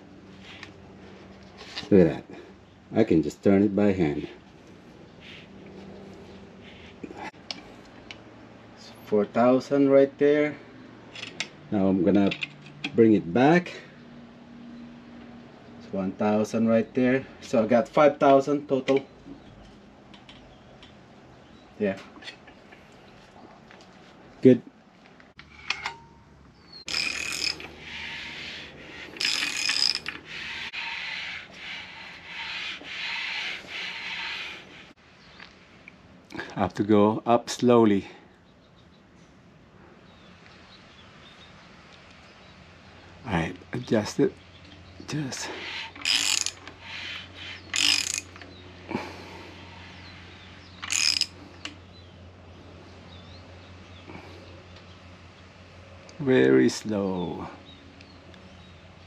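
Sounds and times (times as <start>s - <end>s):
rubbing scraping strokes: 5.1s - 7.1s, 26.9s - 35.0s, 45.1s - 51.3s
ratchet wrench clicking: 26.9s - 28.1s, 29.1s - 30.3s, 45.9s - 48.4s, 50.8s - 51.4s.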